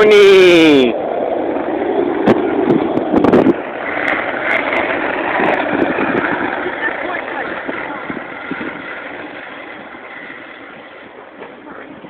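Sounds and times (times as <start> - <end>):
skateboard wheels on asphalt: 0.0 - 12.0
wind on microphone: 0.0 - 12.0
skateboard clacks: 1.3 - 12.0.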